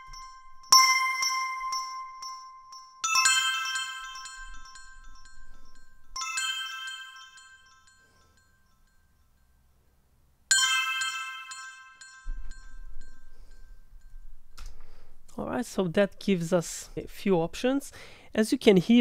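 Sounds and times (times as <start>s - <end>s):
bell chime notification tone: 0.0s - 9.2s, 10.5s - 14.6s.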